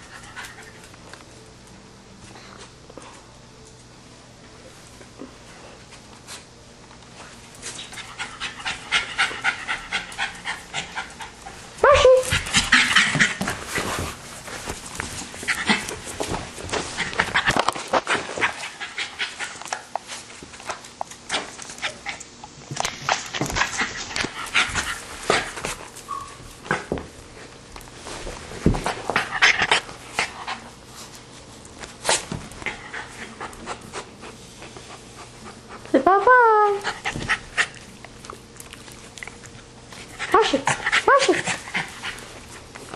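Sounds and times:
dog panting: 7.9 - 11.7.

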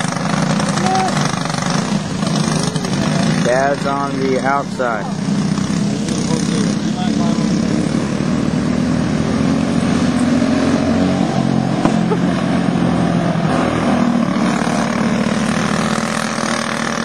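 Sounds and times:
go-kart engines droning: 0.0 - 17.0.

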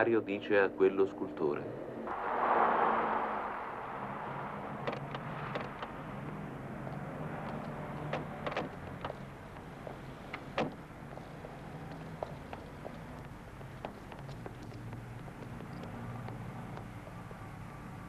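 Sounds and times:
car doors clicking and shutting: 4.8 - 6.2, 6.8 - 10.9.

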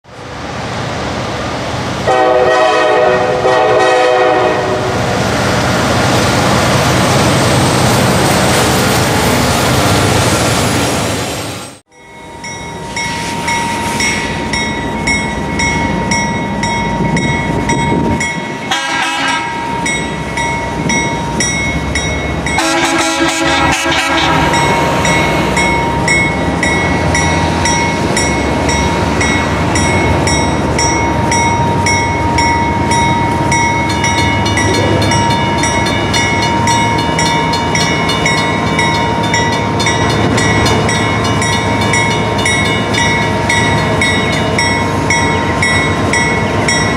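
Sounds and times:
diesel locomotive engine running: 0.2 - 46.9
train horn blast: 2.1 - 5.0, 18.7 - 19.6, 22.6 - 24.8
locomotive bell ringing: 11.9 - 46.9.

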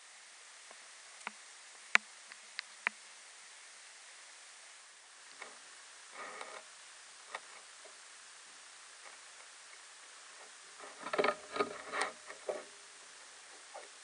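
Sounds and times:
faint steady hiss: 0.0 - 14.0
knocks and creaks: 10.4 - 12.8.

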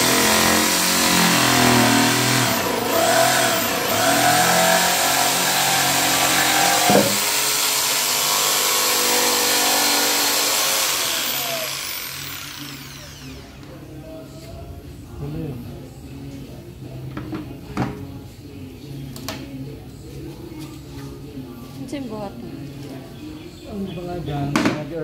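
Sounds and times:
jigsaw cutting plywood: 0.0 - 13.4.

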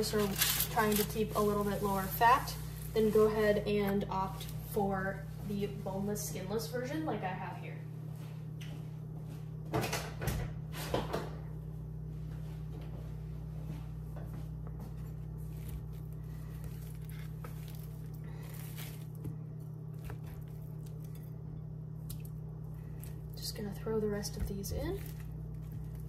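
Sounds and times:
kitchen appliance hum: 0.0 - 26.0.

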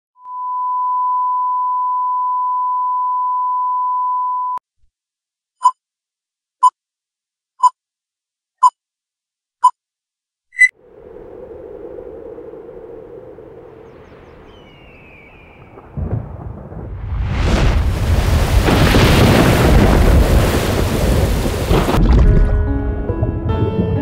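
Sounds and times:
higher beep: 0.2 - 4.6
short beeps: 0.2 - 4.6.

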